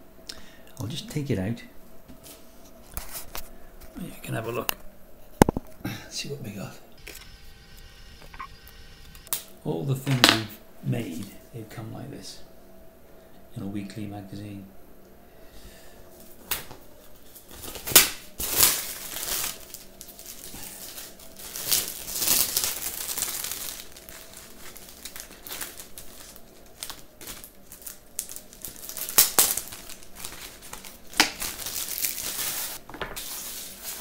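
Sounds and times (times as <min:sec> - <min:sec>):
plastic bag crinkling: 0:17.4 - 0:34.0.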